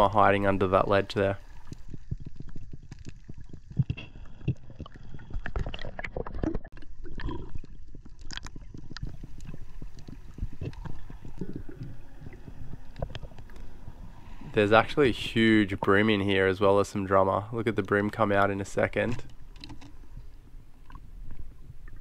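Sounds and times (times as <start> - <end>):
rumble of moving water: 0.0 - 22.0
underwater crackle of clicks: 1.4 - 14.1, 17.8 - 22.0.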